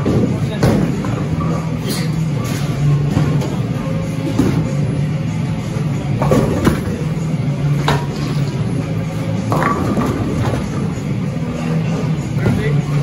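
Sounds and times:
bowling pins crashing: 9.5 - 10.8.

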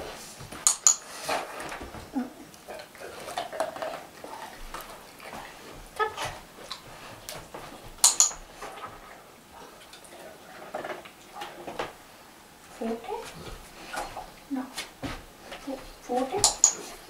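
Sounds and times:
dog claws clicking on floor: 0.5 - 1.8, 6.2 - 8.9, 16.2 - 17.0
light metallic clinks: 8.0 - 8.4, 16.4 - 17.0.

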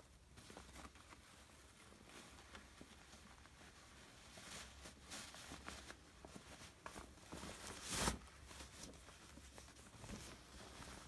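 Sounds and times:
fabric bag rustling: 0.0 - 11.0
cloth swish: 3.5 - 11.0.

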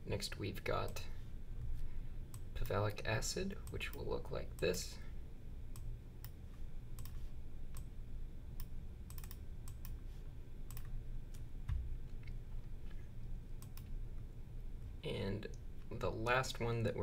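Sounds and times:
low steady background hum: 0.0 - 17.0
computer mouse clicking: 5.7 - 6.4, 7.0 - 7.9, 8.6 - 10.0, 10.7 - 12.4, 13.6 - 14.0.

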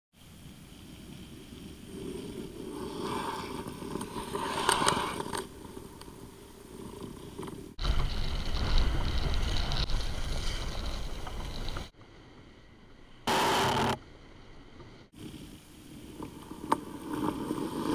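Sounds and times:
ice skate blades scraping: 1.4 - 11.9, 16.4 - 17.9.

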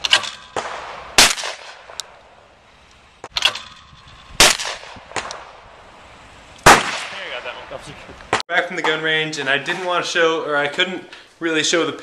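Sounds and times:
shotgun shots: 0.0 - 2.0, 4.4 - 5.6, 6.6 - 7.6.

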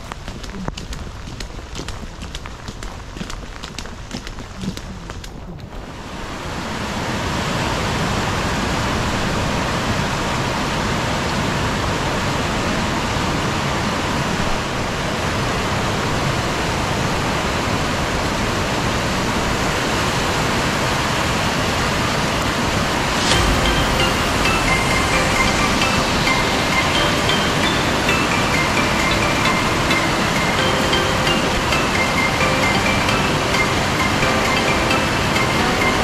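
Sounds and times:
stream rushing: 22.2 - 36.0.

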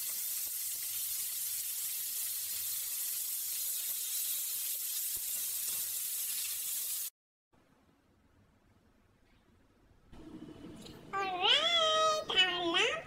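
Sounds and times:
meat sizzling in grill pan: 0.0 - 7.1.

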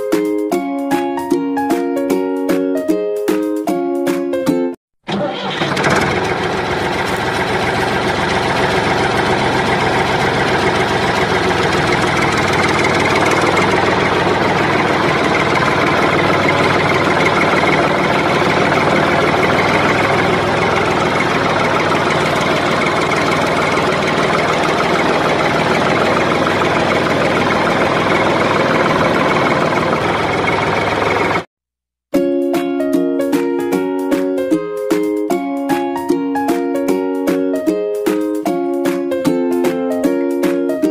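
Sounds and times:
tractor engine running: 5.1 - 31.5.

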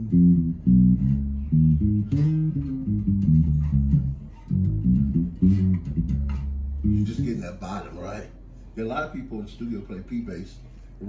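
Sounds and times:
bass guitar plucked notes: 0.0 - 7.9.

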